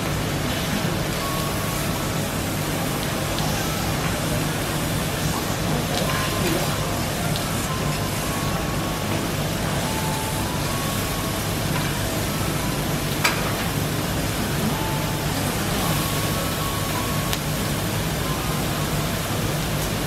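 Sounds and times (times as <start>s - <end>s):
meat and vegetables sizzling: 0.0s - 20.0s.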